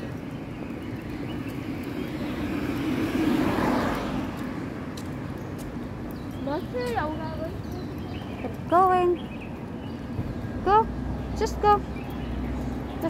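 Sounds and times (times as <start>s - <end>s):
car passing: 0.0s - 9.8s.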